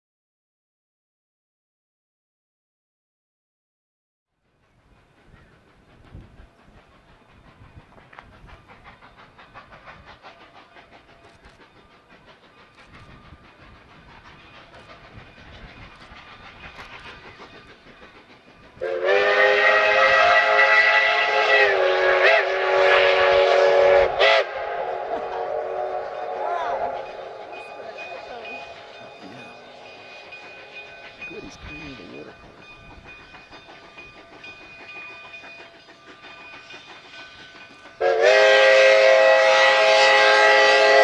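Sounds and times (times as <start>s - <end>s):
steam locomotive clatter: 4.3s - 41.0s
steam whistle: 18.8s - 27.9s, 38.0s - 41.0s.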